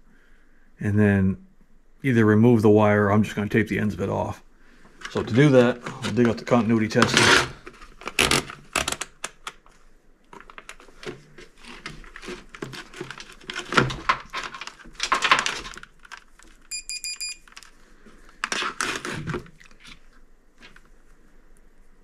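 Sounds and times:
rustling and clicking of wiring: 0:04.8 - 0:21.7
short high meter beeps: 0:16.7 - 0:17.4.

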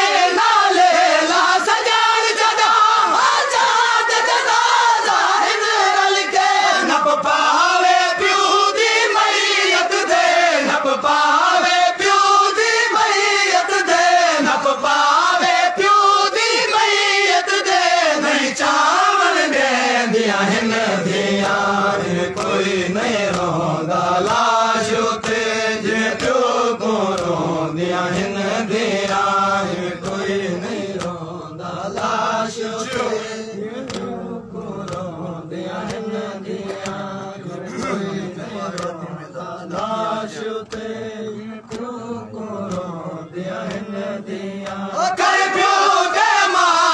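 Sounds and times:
men chanting in unison: 0:00.0 - 0:46.9
lead reciter on microphone: 0:04.4 - 0:46.9
chest-beating slaps: 0:21.4 - 0:23.6, 0:25.2 - 0:27.5, 0:29.0 - 0:29.3, 0:30.0 - 0:31.3, 0:32.8 - 0:39.1, 0:41.6 - 0:42.0, 0:42.6 - 0:43.0.

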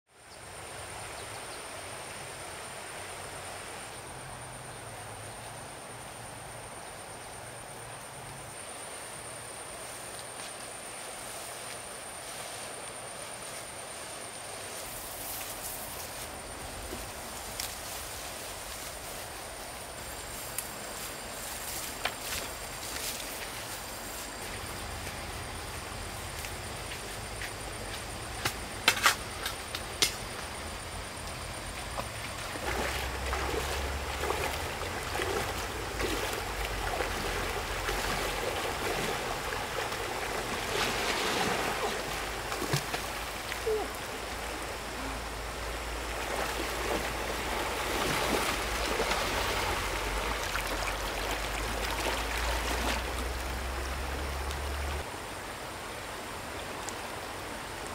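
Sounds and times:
stream trickling: 0:00.2 - 0:57.9
water splashing and sloshing: 0:09.2 - 0:55.1.

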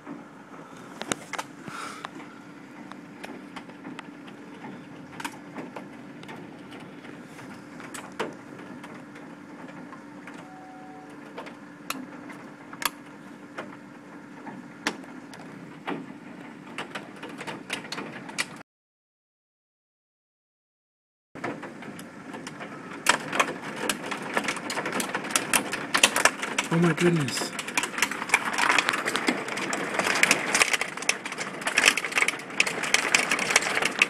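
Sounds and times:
hail and rain falling: 0:21.4 - 0:34.0
hailstones striking hard surfaces: 0:23.1 - 0:34.0.

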